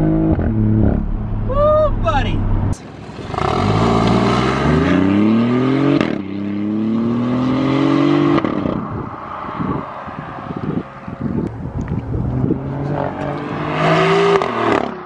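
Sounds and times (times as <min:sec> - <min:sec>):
car engine accelerating hard: 0:00.0 - 0:01.5, 0:02.6 - 0:15.0
exhaust sputters and crackles: 0:00.0 - 0:04.9, 0:10.4 - 0:13.3.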